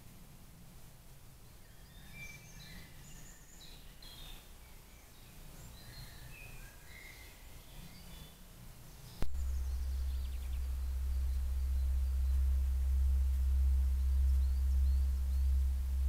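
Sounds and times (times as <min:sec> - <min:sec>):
birds chirping: 0:01.5 - 0:16.0
steady low hum: 0:08.4 - 0:16.0.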